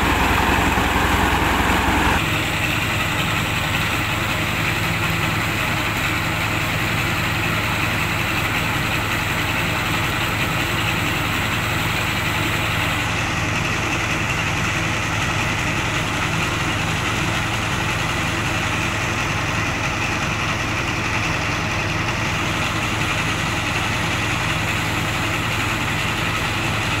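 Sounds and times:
hiss of grain and machinery: 0:00.0 - 0:03.0
diesel engine droning: 0:00.0 - 0:27.0.

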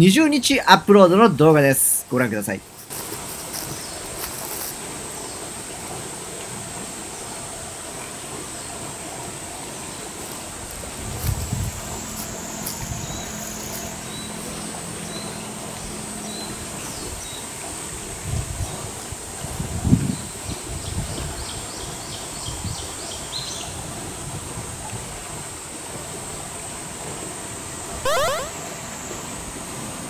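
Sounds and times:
insects buzzing: 0:02.4 - 0:05.8, 0:09.7 - 0:18.2
short high chirps: 0:28.0 - 0:28.9.

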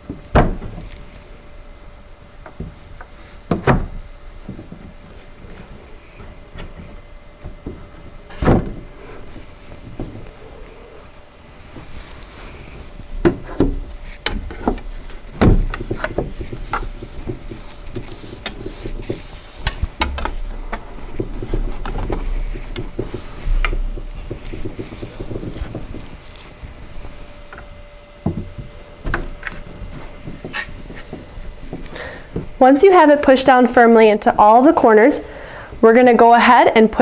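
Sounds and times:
heavy thumps on wooden frame: 0:00.0 - 0:00.9, 0:07.4 - 0:09.0, 0:13.2 - 0:26.2, 0:28.2 - 0:32.6
wooden frame knocking and creaking: 0:21.1 - 0:26.1.

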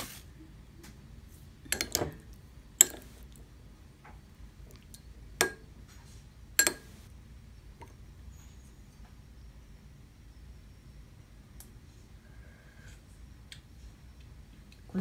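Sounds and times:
metal spoon clinking on glass bowl: 0:01.7 - 0:02.1, 0:02.8 - 0:03.1, 0:06.6 - 0:06.9.

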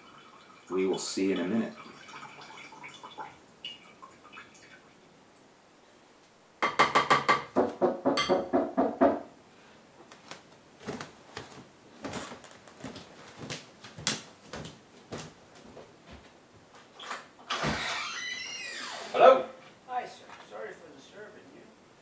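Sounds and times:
faint footsteps: 0:10.0 - 0:17.0.

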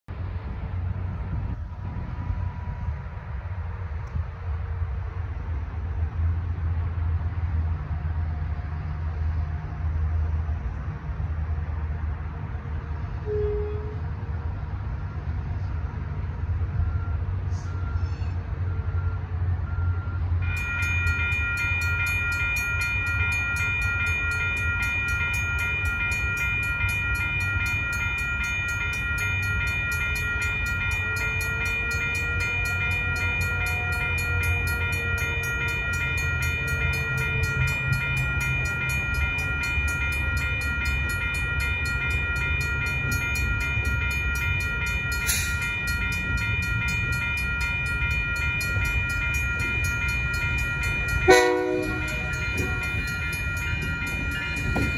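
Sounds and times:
electronic crossing bell ringing: 0:16.7 - 0:54.9.

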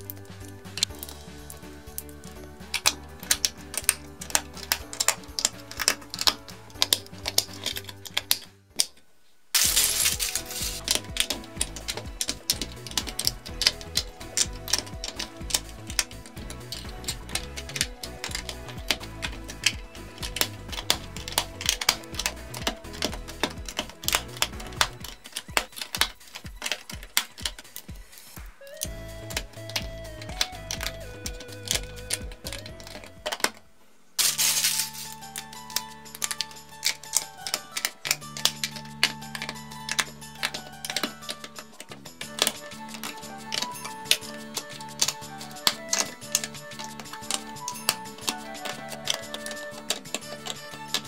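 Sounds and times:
light background music: 0:00.0 - 0:08.8, 0:09.6 - 0:51.0
plastic bricks clicking together: 0:02.7 - 0:09.0, 0:09.6 - 0:33.6, 0:34.2 - 0:51.0.

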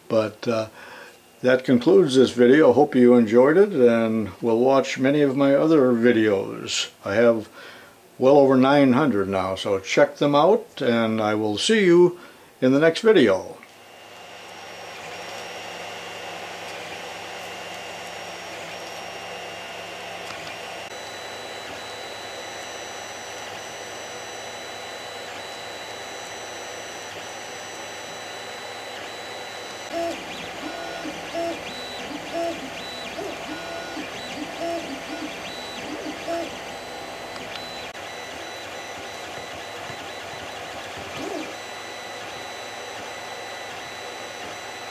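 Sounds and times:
three-d printer whirring hum: 0:13.1 - 0:44.9
stepper motors singing: 0:13.8 - 0:44.9.

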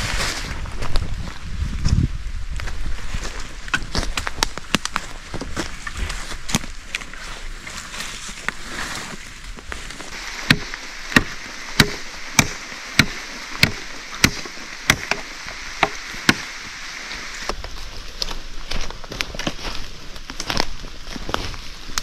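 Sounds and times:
rain hiss: 0:09.9 - 0:17.6.

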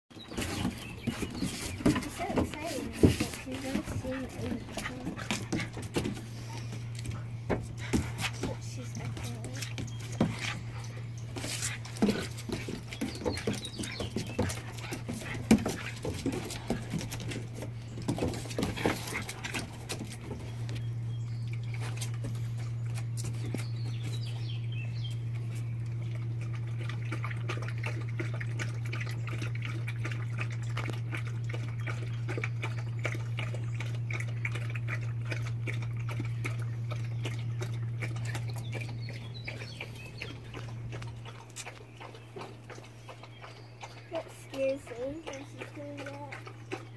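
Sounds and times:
dogs lapping water from metal bowl: 0:00.1 - 0:46.9
dogs scuffling in play: 0:00.2 - 0:21.0, 0:21.6 - 0:25.8
steady low hum: 0:00.2 - 0:46.9.

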